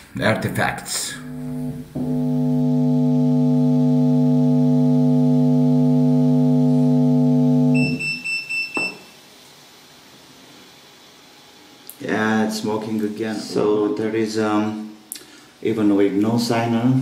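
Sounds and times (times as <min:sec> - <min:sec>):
buzzy distorted subwoofer tone: 0:00.3 - 0:08.0
high-pitched pulsing whine: 0:01.2 - 0:08.2.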